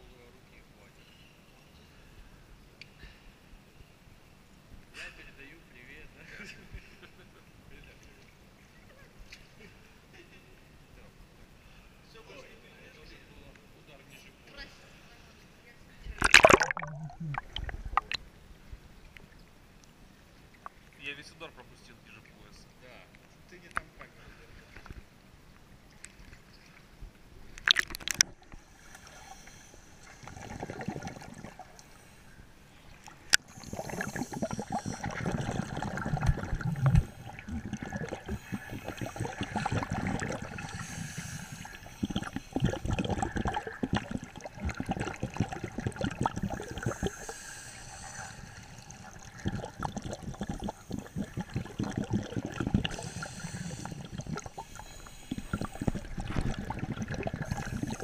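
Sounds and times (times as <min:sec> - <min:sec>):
underwater bubbling: 0:16.2 - 0:19.5, 0:27.4 - 0:58.0.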